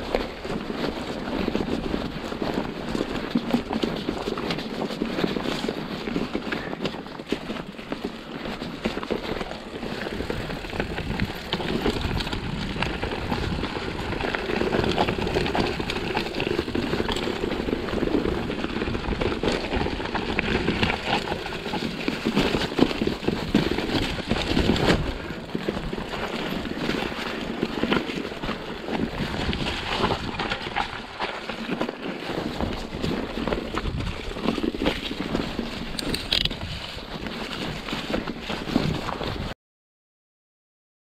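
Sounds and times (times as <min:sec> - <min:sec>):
bike jolting over bumps: 0:00.0 - 0:39.5
bike tyres crunching over stones: 0:00.0 - 0:39.5
wind buffeting microphone: 0:09.9 - 0:21.2, 0:32.4 - 0:37.8.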